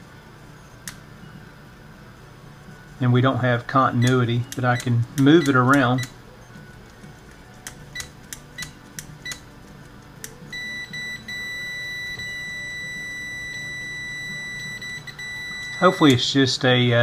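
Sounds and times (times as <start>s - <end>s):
continuity tester beeping: 3.7s - 6.6s, 7.9s - 9.5s, 10.5s - 16.3s.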